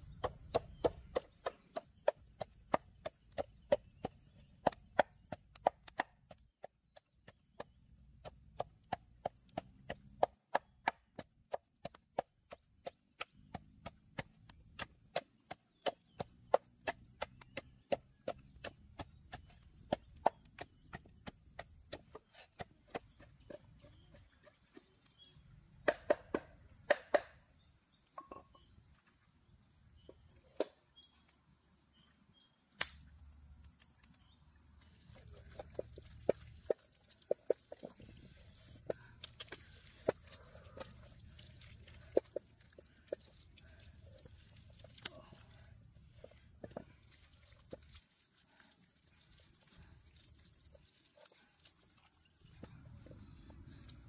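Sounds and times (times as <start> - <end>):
pestle pounding in a mortar: 0.0 - 24.9.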